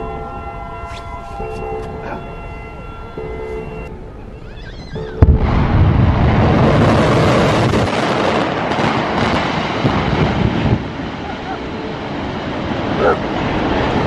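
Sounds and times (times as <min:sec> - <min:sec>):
warning siren tone: 0:00.0 - 0:05.8
rumble of tower collapsing: 0:05.2 - 0:14.0
sharp explosive blast: 0:05.2 - 0:14.0.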